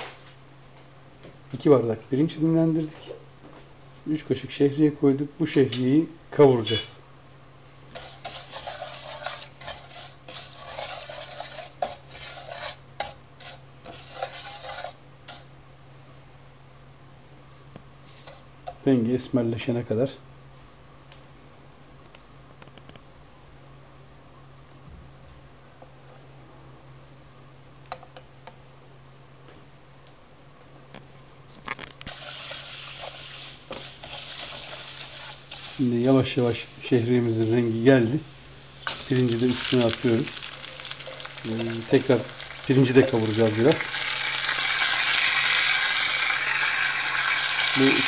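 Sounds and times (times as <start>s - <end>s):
noodles sizzling in oil: 7.9s - 15.5s, 32.0s - 48.0s
wooden spoon scraping a pan: 7.9s - 15.5s, 18.0s - 18.8s, 32.1s - 37.5s, 38.8s - 48.0s.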